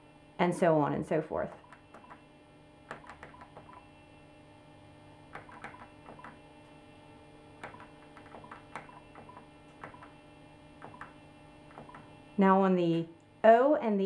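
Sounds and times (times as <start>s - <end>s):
steady electrical hum: 0.0s - 14.0s
phone keypad buttons clicking: 5.4s - 6.4s, 7.6s - 10.1s.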